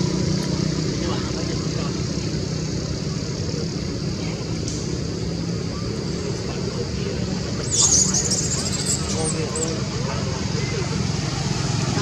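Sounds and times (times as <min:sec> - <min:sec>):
low hum with hiss: 0:00.0 - 0:12.0
monkey screaming: 0:07.6 - 0:09.8.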